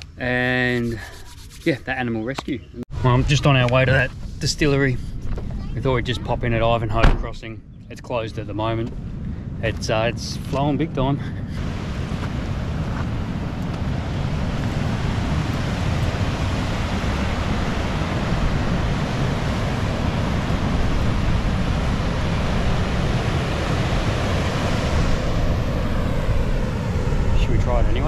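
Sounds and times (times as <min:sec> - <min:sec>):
wind rumbling on microphone: 0:02.9 - 0:28.0
river rushing over causeway: 0:11.6 - 0:27.2.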